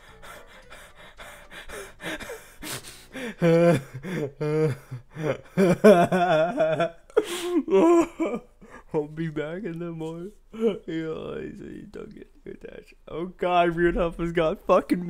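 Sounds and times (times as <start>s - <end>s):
man laughing: 2.0s - 9.2s.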